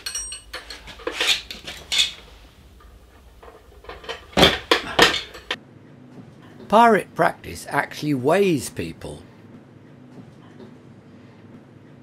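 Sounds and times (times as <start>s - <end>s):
metal spring balance clinking: 0.0s - 5.6s.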